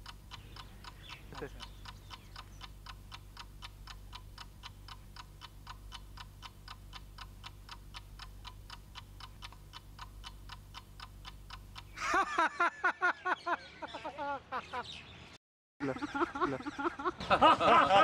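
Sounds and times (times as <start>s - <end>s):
clock ticking: 0.0s - 12.7s.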